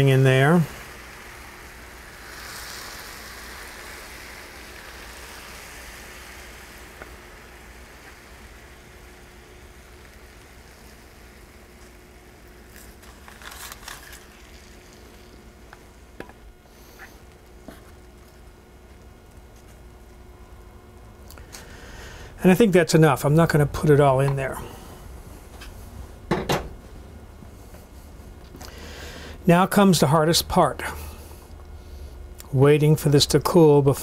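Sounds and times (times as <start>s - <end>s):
syrup sizzling and crackling: 0.0s - 20.3s.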